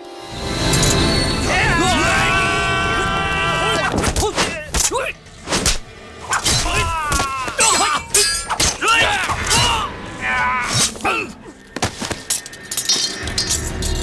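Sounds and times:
men grunting and shouting: 0:01.5 - 0:05.2, 0:06.3 - 0:11.6.

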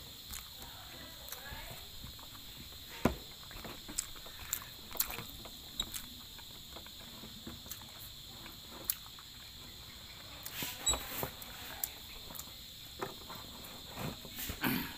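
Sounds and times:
faint high hiss: 0:00.0 - 0:14.9
chewing clicks and smacks: 0:03.5 - 0:07.0, 0:07.6 - 0:09.4.

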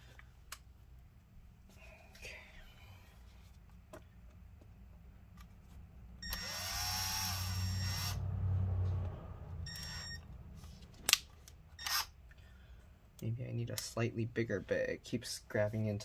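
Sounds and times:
power drill drilling into metal: 0:06.3 - 0:08.2.

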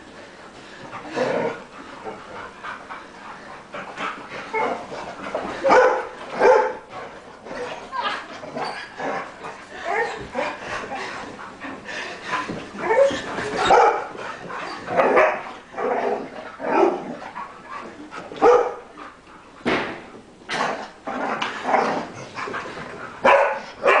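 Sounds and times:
dogs barking and yipping: 0:05.5 - 0:06.9, 0:12.8 - 0:16.0, 0:18.4 - 0:18.9, 0:23.2 - 0:24.0.

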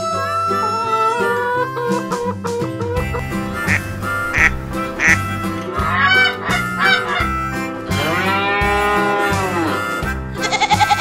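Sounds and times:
background music: 0:00.0 - 0:11.0
farm animal calls: 0:03.2 - 0:07.4.

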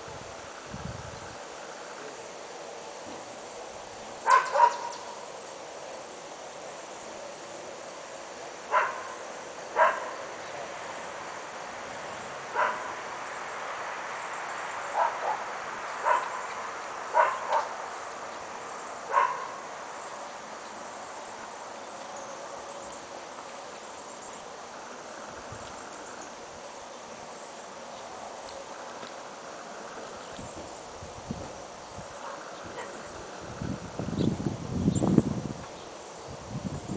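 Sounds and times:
insects buzzing: 0:00.0 - 0:36.9
dog barking: 0:04.2 - 0:05.0, 0:08.7 - 0:09.2, 0:09.8 - 0:10.2, 0:12.5 - 0:12.9, 0:15.0 - 0:15.4, 0:16.0 - 0:16.3, 0:17.1 - 0:17.7, 0:19.1 - 0:19.6.

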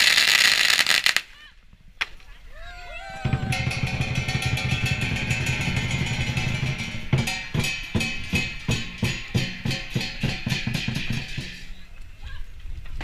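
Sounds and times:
dance drum playing: 0:03.2 - 0:11.7
cymbal crashes ringing: 0:03.3 - 0:11.7.

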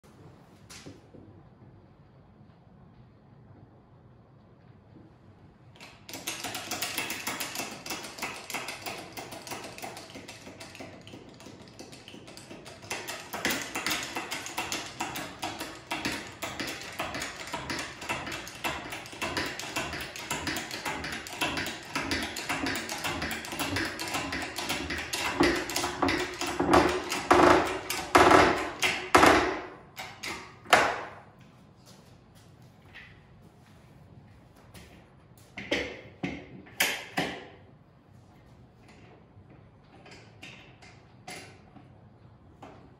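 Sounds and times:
hydraulic jack clicking: 0:05.8 - 0:31.1.

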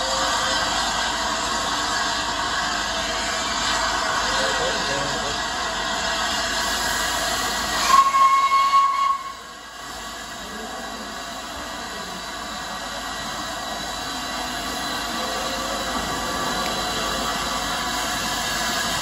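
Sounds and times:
steam locomotive hissing steam: 0:00.0 - 0:19.0
steam whistle blast: 0:07.8 - 0:09.5.

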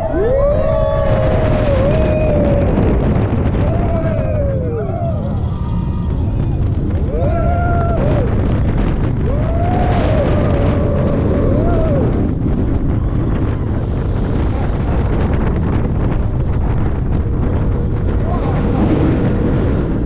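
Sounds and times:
roller coaster train running: 0:00.0 - 0:20.0
wind rush on microphone: 0:00.0 - 0:20.0.

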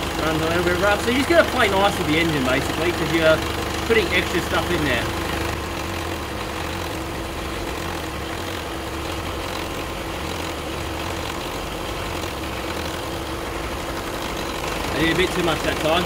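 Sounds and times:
diesel engine idling roughly: 0:00.0 - 0:16.0.

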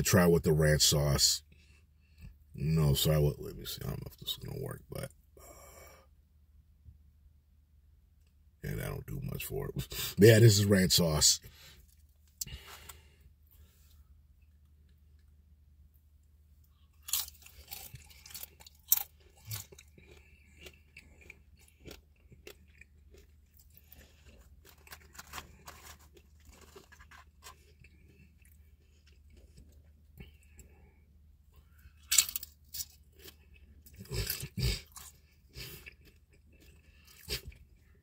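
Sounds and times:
chewing: 0:16.6 - 0:38.0
crunching bites: 0:16.8 - 0:29.8, 0:31.9 - 0:37.6.

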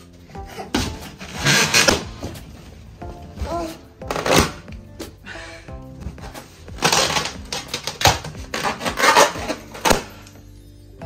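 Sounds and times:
background music: 0:00.0 - 0:11.0
rubber balloons squeezed and rubbed: 0:00.4 - 0:04.7, 0:05.9 - 0:10.2.

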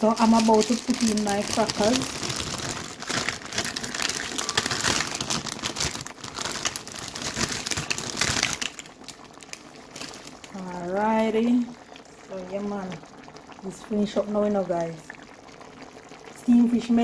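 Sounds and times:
plastic packet crinkling: 0:00.0 - 0:10.7.

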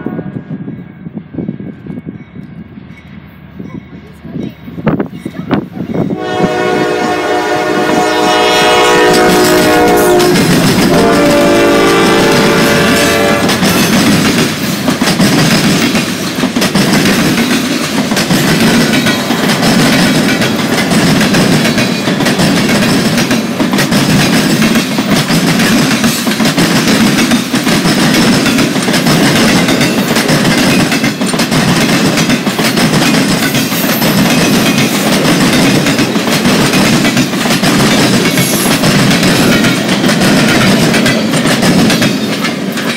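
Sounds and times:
train wheels rushing: 0:00.0 - 0:42.9
train horn chord: 0:06.2 - 0:13.6
wheels clicking over rail joints: 0:13.4 - 0:42.9.

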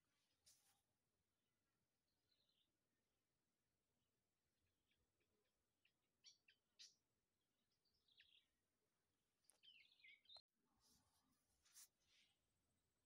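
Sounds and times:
faint bird chirps: 0:04.8 - 0:08.7, 0:09.3 - 0:13.0.

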